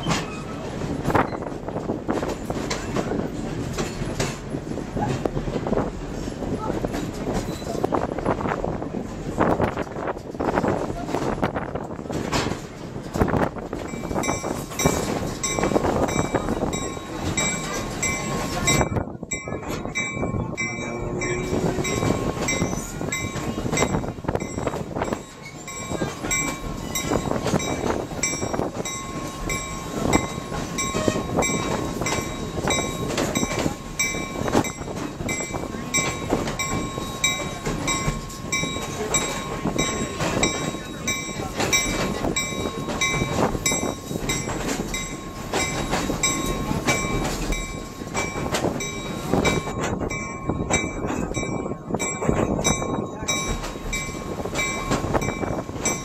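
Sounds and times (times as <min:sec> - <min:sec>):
train cars rumbling: 0:00.0 - 0:56.0
wheels clicking over rail joints: 0:00.0 - 0:56.0.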